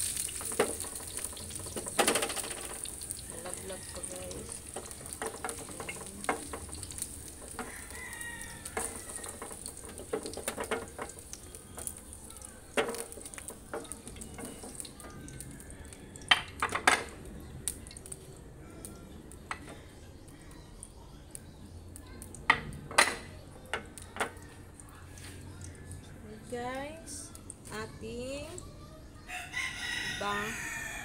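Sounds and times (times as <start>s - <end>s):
vegetables sizzling in oil: 0.0s - 15.5s.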